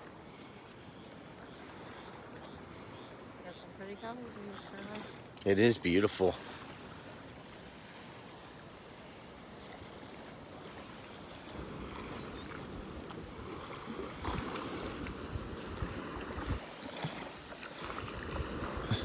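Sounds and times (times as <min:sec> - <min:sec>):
gentle surf washing onto sand: 0:01.4 - 0:19.0
wind gusts on microphone: 0:11.4 - 0:16.8, 0:17.8 - 0:19.0.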